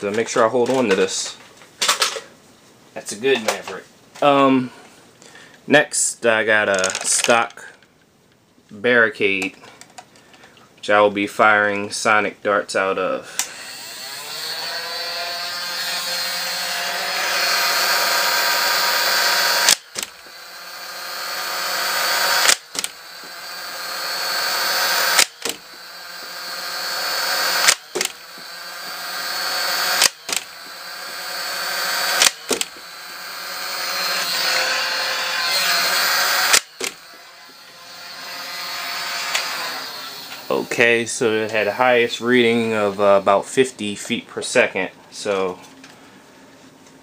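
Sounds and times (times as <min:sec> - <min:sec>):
flywheel motors whining: 0:13.4 - 0:43.3
toy dart firing snap: 0:18.6 - 0:20.4, 0:21.6 - 0:23.4, 0:24.4 - 0:25.9, 0:27.2 - 0:28.5, 0:29.2 - 0:31.2, 0:31.8 - 0:32.8, 0:36.3 - 0:37.1.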